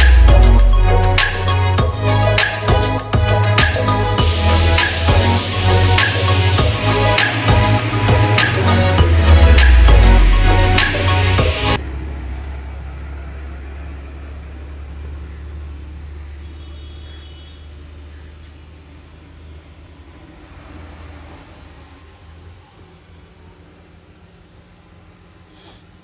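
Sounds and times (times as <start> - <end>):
diesel engine idling: 0.0 - 20.7.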